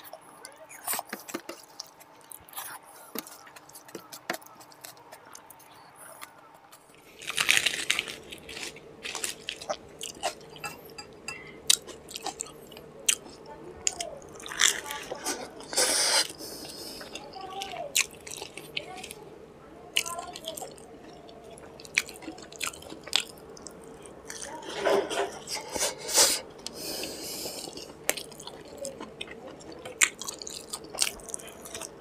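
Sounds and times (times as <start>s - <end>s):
biting and chewing: 0.0s - 10.9s, 20.0s - 25.7s, 26.6s - 32.0s.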